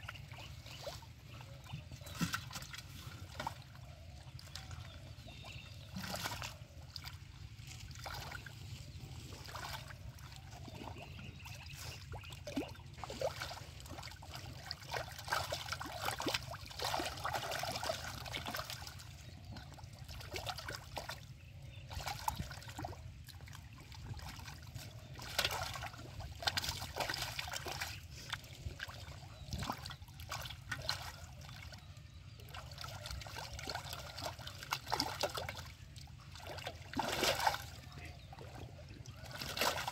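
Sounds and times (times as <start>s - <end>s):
hands splashing in muddy water: 2.0s - 7.2s, 7.8s - 19.0s, 25.2s - 31.2s, 32.5s - 37.9s, 39.2s - 39.9s.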